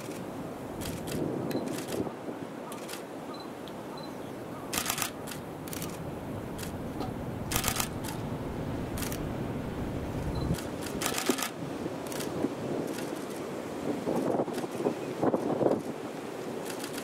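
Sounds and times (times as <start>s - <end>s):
steady background noise: 0.0s - 17.0s
camera shutters firing: 0.8s - 2.0s, 2.7s - 3.1s, 4.7s - 6.0s, 7.5s - 8.2s, 10.5s - 12.3s, 16.6s - 17.0s.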